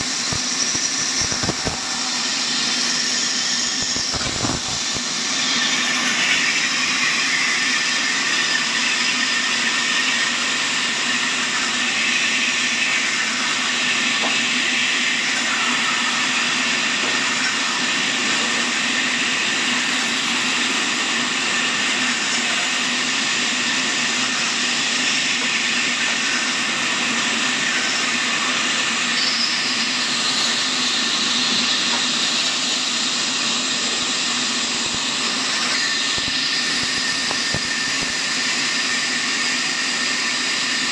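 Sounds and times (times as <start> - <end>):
machine hum: 0.0 - 8.1, 23.0 - 39.7
high machine whine: 0.0 - 40.9.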